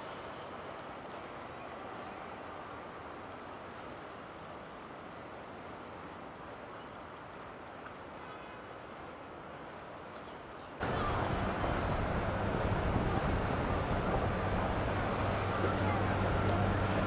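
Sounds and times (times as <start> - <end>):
boat engines on river: 10.8 - 17.0.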